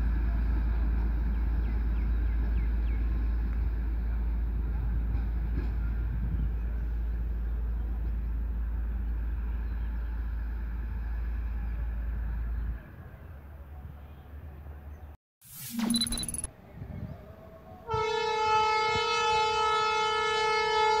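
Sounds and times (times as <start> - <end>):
rail vehicle engine running: 0.0 - 15.1
wind rumble on microphone: 1.6 - 8.0, 16.5 - 18.0.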